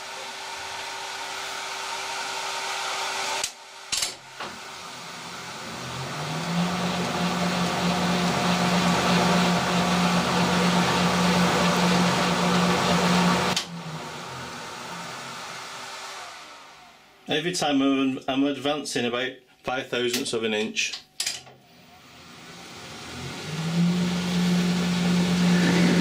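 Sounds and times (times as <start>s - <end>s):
lathe humming: 4.4s - 17.0s, 22.4s - 26.0s.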